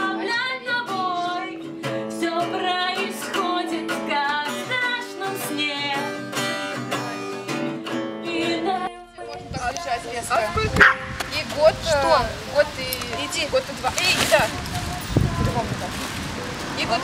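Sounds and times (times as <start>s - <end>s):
person singing: 0.0s - 10.8s
guitar: 0.0s - 17.0s.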